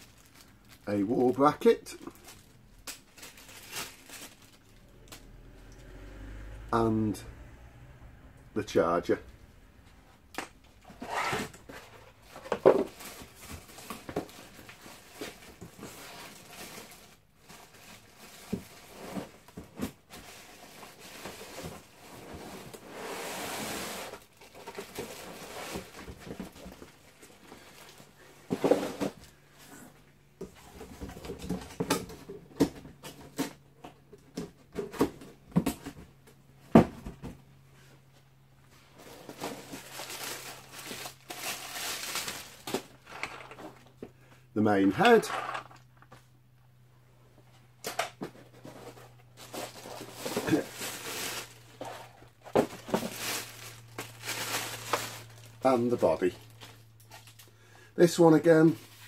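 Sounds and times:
plastic wrapping rustling: 0.0s - 5.3s, 10.5s - 29.5s, 38.7s - 44.0s, 48.4s - 59.0s
cardboard packaging handled: 10.8s - 29.2s, 39.0s - 43.8s, 48.2s - 57.4s.

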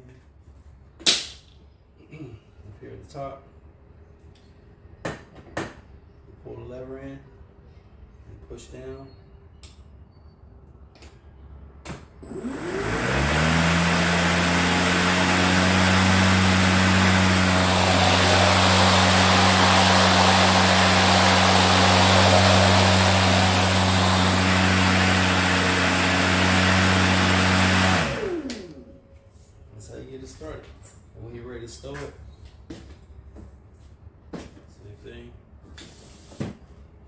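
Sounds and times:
electric lawn mower humming: 12.2s - 29.0s
air rushing from spinning blade: 15.2s - 26.0s.

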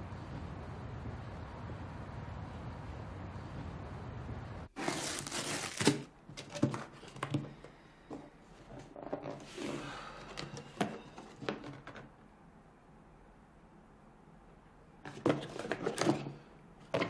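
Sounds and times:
packing tape ripping: 4.8s - 6.1s.

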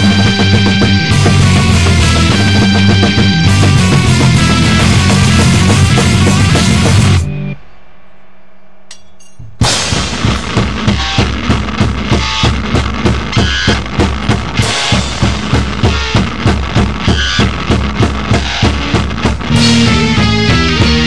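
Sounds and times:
drum kit playing steady beat: 0.0s - 7.3s, 8.9s - 21.0s
heavy rock band: 0.0s - 8.1s, 9.6s - 21.0s
cymbal crashes: 4.6s - 12.2s.

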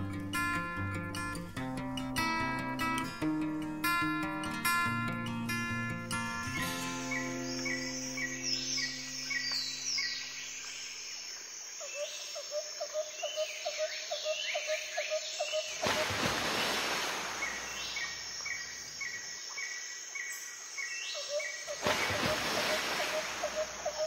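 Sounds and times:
rapid chirps and calls: 23.1s - 24.0s.

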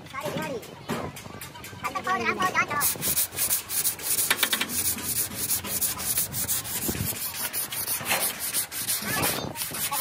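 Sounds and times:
putty spreader scraping metal panel: 2.8s - 10.0s.

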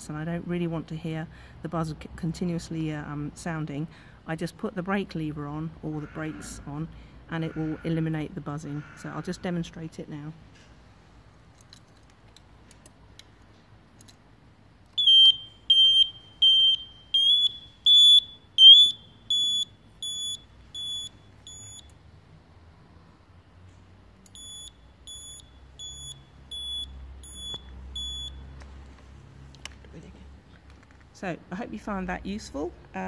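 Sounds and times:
high-pitched indicator beeps: 15.0s - 21.9s, 24.3s - 28.4s.

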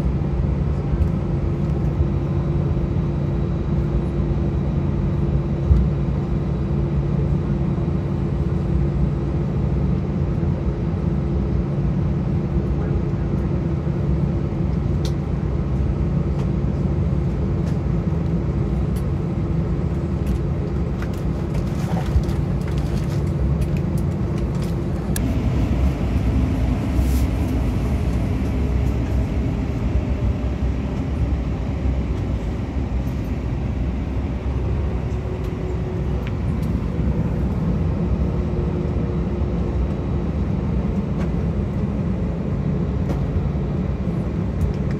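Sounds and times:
aircraft engines rumbling: 0.0s - 44.9s.

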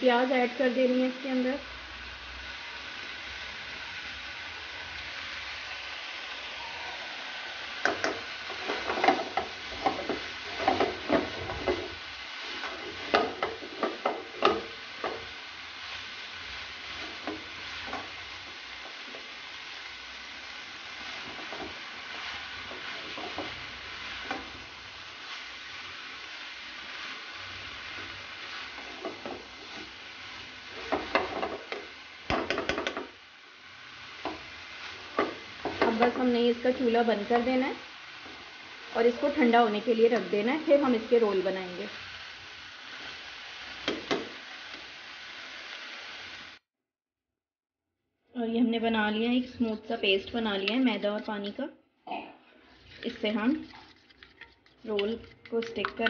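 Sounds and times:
food sizzling in a frying pan: 0.0s - 46.7s, 48.6s - 51.8s, 52.5s - 56.0s
spatula scraping a pan: 8.1s - 15.3s, 26.9s - 31.8s, 52.6s - 56.0s.

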